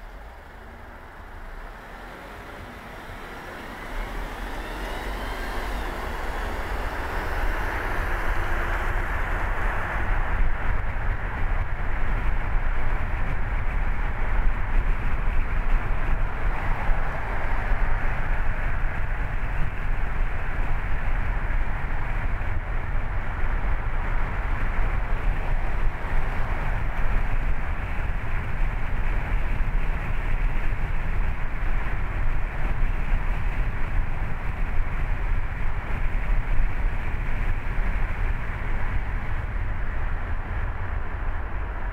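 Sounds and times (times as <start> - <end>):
car road noise: 0.0 - 41.9.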